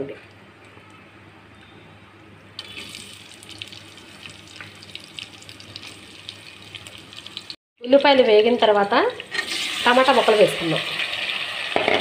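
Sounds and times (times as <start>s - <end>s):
onions sizzling in hot oil: 2.6s - 7.6s, 8.5s - 12.0s.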